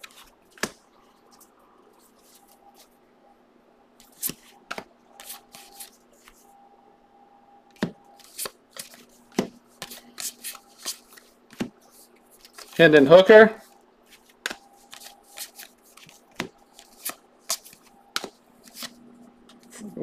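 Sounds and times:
trading cards snapping and sliding: 0:00.0 - 0:00.8, 0:04.0 - 0:06.4, 0:07.7 - 0:12.8, 0:14.1 - 0:19.7
faint steady hum: 0:00.0 - 0:20.0.

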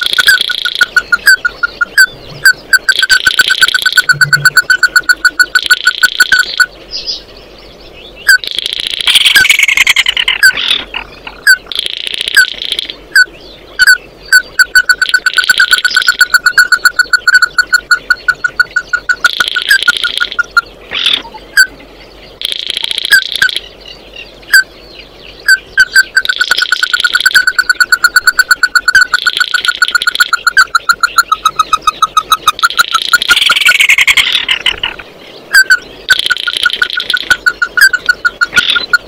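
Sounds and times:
bird calling repeated hard notes: 0:00.0 - 0:06.8, 0:08.2 - 0:39.0
bird harsh high trilling: 0:08.3 - 0:21.7, 0:25.4 - 0:39.0.

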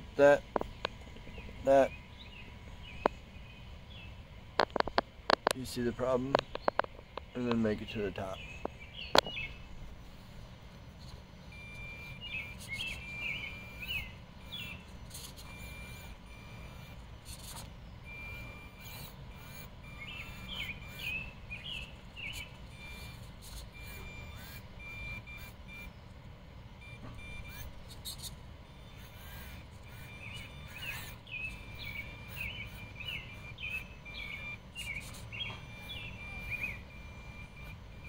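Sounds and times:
small birds chirping: 0:00.0 - 0:38.0
short high beeps: 0:11.5 - 0:14.8, 0:22.7 - 0:26.0, 0:26.8 - 0:27.8, 0:28.7 - 0:38.0.

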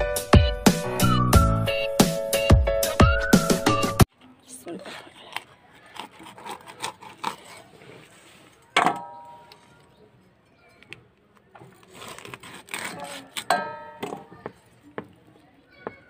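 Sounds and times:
knife cutting chicken: 0:05.3 - 0:08.1, 0:11.6 - 0:13.5.

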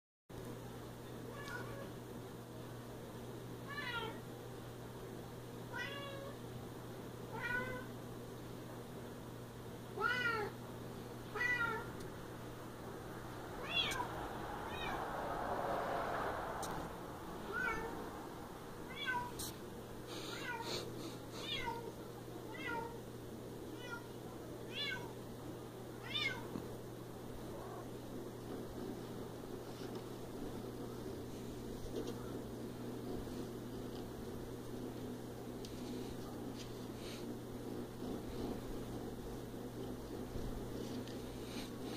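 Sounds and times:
cat meowing: 0:07.3 - 0:07.9, 0:10.0 - 0:10.5, 0:11.3 - 0:11.9, 0:13.6 - 0:14.1, 0:14.7 - 0:15.0, 0:17.4 - 0:18.0, 0:18.9 - 0:19.4, 0:21.4 - 0:21.9, 0:22.5 - 0:23.0, 0:24.7 - 0:25.2, 0:26.0 - 0:26.5.

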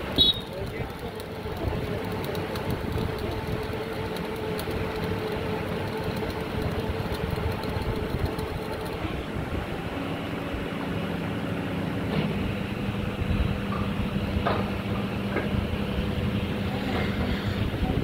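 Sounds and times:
drilling rig engine hum: 0:00.0 - 0:18.0
faint crackling ticks: 0:00.2 - 0:09.0.

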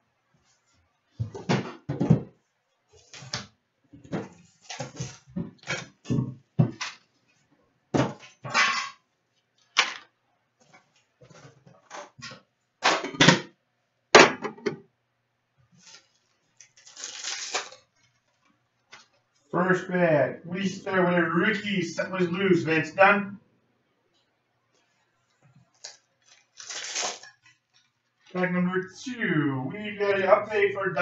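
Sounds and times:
wrapper crinkling rustle: 0:15.7 - 0:19.5, 0:25.7 - 0:28.4
card packs crinkling and clicking: 0:15.8 - 0:19.2, 0:25.7 - 0:28.4.

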